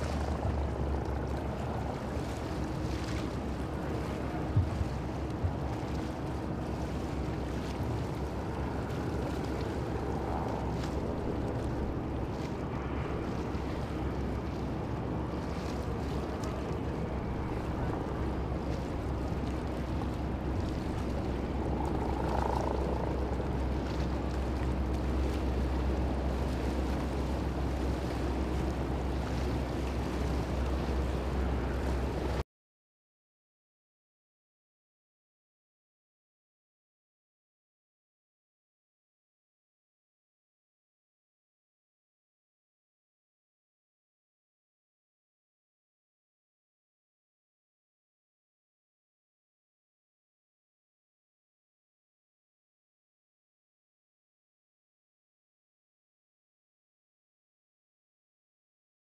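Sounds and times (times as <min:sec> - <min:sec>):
boat engine drone: 0:00.0 - 0:32.4
river water washing: 0:00.0 - 0:32.4
wind on microphone: 0:00.0 - 0:32.4.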